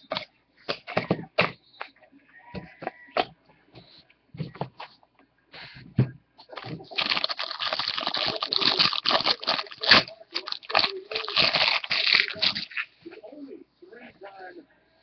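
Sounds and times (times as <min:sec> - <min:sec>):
plastic wrapper crinkling and tearing: 0:06.9 - 0:12.9.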